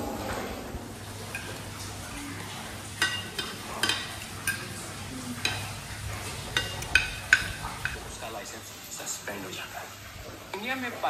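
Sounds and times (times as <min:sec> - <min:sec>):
low steady hum: 0:00.0 - 0:10.6
cutlery clinking on plates: 0:01.2 - 0:08.1.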